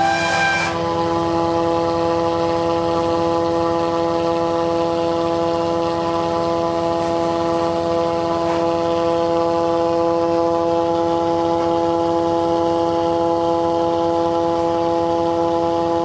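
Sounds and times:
electric grinder grinding chillies: 0.0 - 4.7.

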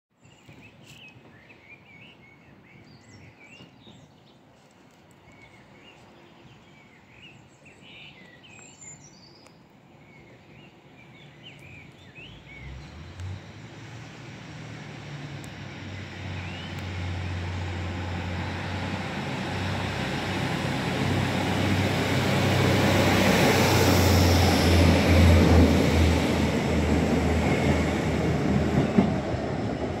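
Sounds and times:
train engine drone and rail noise: 0.3 - 30.0.

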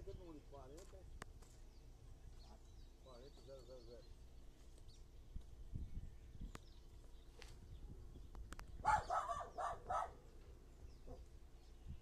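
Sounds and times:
dog barking: 8.8 - 10.2.

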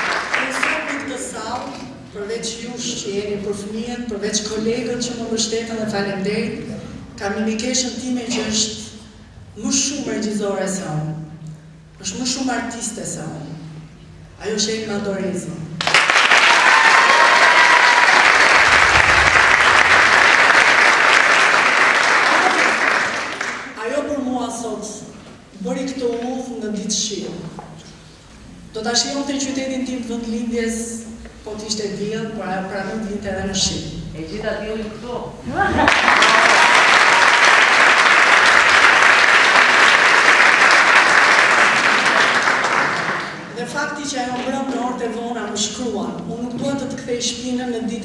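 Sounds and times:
audience applauding: 0.0 - 1.1, 15.8 - 23.8, 35.7 - 43.5.

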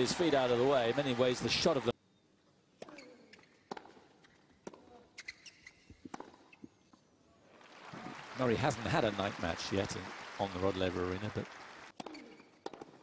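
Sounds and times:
tennis racket striking ball: 2.8 - 5.0, 6.0 - 6.7, 12.0 - 13.0
tennis ball bouncing: 2.8 - 6.8, 12.0 - 13.0.

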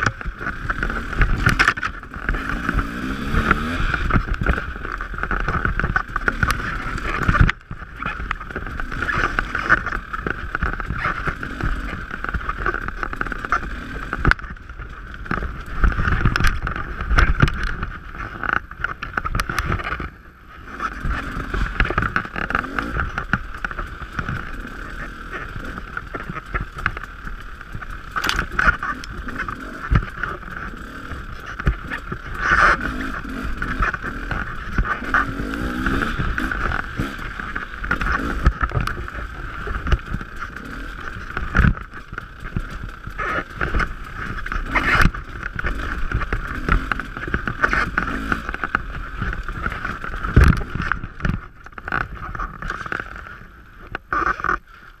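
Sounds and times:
dirt bike engine revving: 0.0 - 51.0
bike clattering over rough ground: 0.0 - 55.0.

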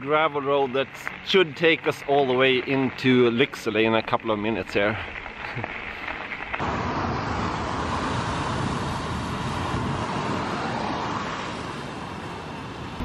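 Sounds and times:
cars driving past: 6.6 - 13.0.

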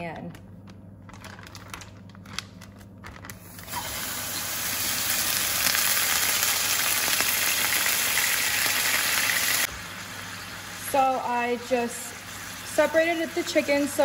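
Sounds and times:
chicken sizzling in a skillet: 3.6 - 14.0.

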